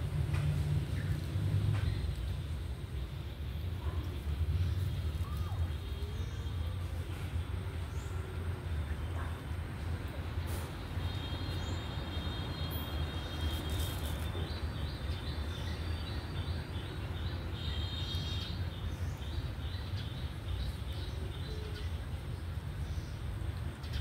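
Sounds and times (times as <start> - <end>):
low outdoor rumble: 0.0 - 11.3.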